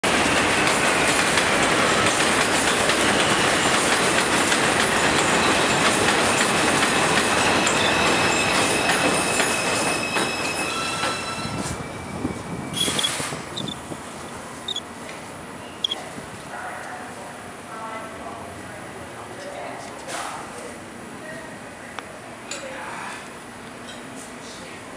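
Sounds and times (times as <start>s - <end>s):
train wheels rumbling on rails: 0.0s - 17.0s
high steady wheel squeal: 5.3s - 13.8s, 14.5s - 14.8s.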